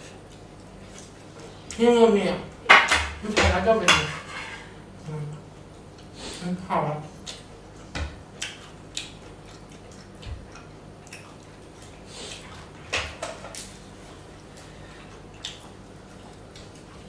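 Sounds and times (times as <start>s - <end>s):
mouth chewing and smacking: 7.2s - 12.7s, 15.0s - 17.0s.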